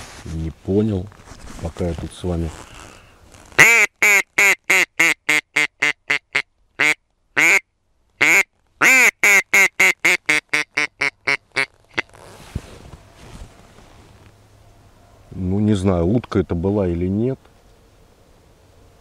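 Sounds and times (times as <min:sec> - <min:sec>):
duck quacking: 0:03.6 - 0:07.6, 0:08.2 - 0:11.7.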